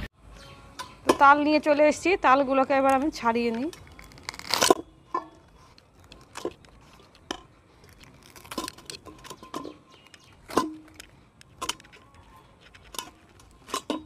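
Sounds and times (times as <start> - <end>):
fruit skin cracking and tearing: 3.6 - 9.4.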